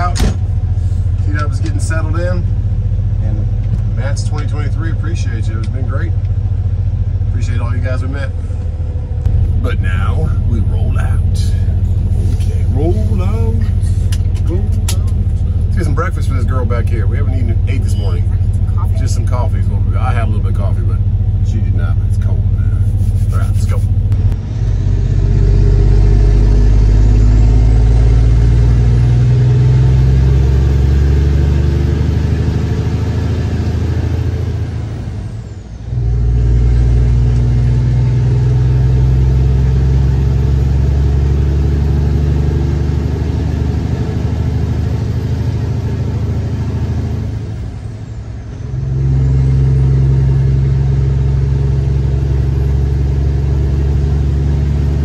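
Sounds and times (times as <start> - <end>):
diesel truck engine pulling away: 23.9 - 55.0.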